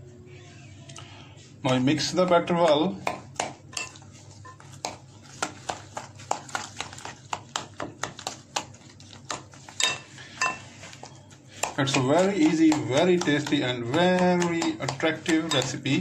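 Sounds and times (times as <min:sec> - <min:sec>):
spoon mashing wet batter: 0:01.4 - 0:16.0
spoon tapping bowl: 0:02.6 - 0:04.6, 0:09.3 - 0:10.7, 0:11.6 - 0:16.0.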